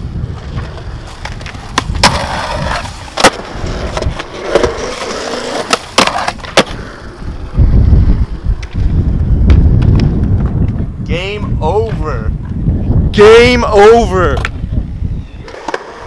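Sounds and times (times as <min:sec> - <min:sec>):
skateboard gritty scraping: 0:00.0 - 0:11.0, 0:15.4 - 0:16.0
skateboard wheels rumbling on concrete: 0:00.0 - 0:16.0
skateboard clacks: 0:00.3 - 0:06.8.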